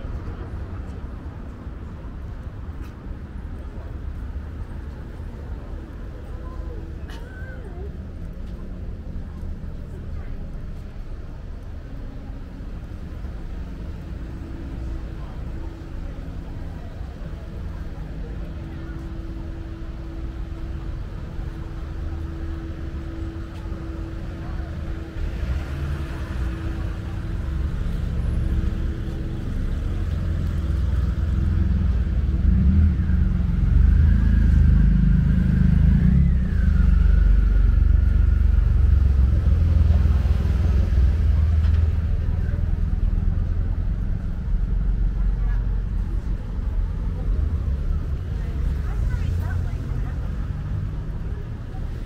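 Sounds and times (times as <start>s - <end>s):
engine rumbling: 0.0s - 52.0s
street traffic: 0.0s - 52.0s.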